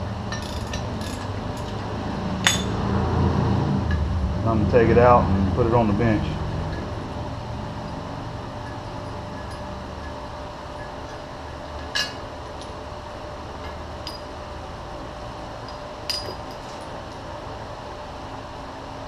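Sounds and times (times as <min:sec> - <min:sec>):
low shop hum: 0:00.0 - 0:19.0
sharp metallic clinks: 0:02.4 - 0:02.8.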